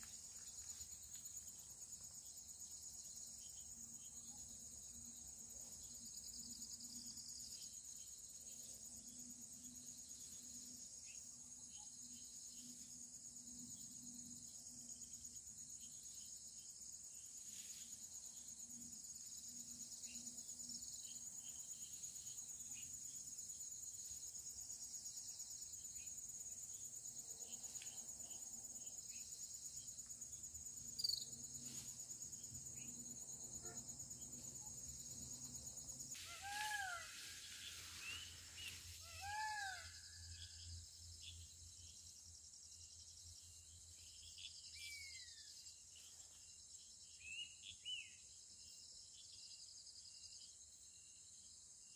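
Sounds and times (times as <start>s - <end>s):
cricket trill: 0.0s - 51.9s.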